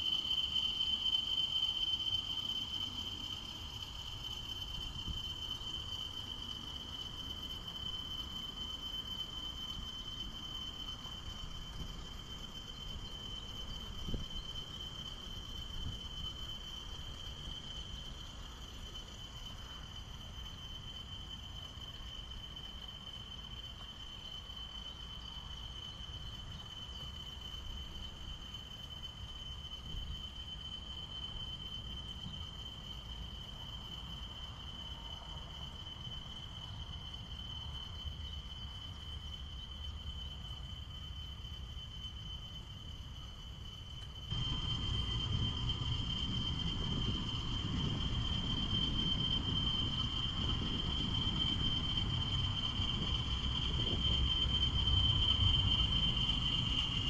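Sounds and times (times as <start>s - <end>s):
insect trill: 0.0s - 57.0s
low rumble: 44.3s - 57.0s.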